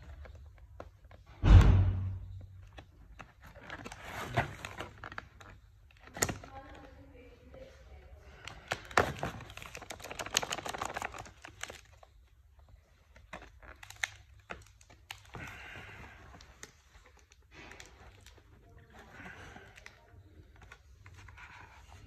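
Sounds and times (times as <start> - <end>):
plastic packaging crinkling: 2.4 - 7.7, 8.3 - 22.0.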